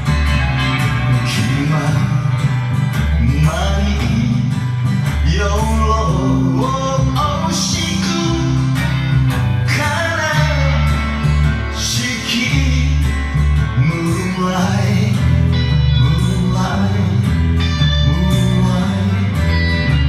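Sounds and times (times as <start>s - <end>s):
rock band playing: 0.0s - 20.0s.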